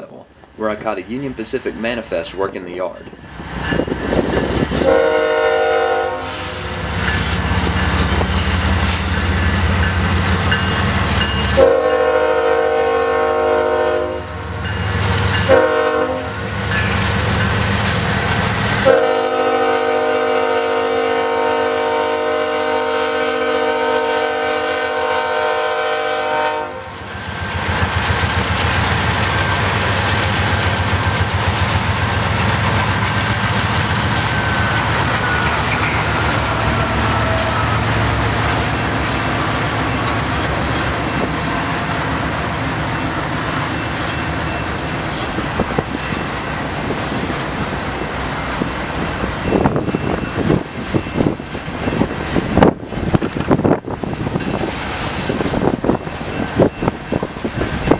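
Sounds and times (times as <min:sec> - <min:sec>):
locomotive air horn blasts: 0:04.8 - 0:07.4, 0:11.5 - 0:14.4, 0:15.5 - 0:16.4, 0:18.8 - 0:27.0, 0:34.5 - 0:38.2.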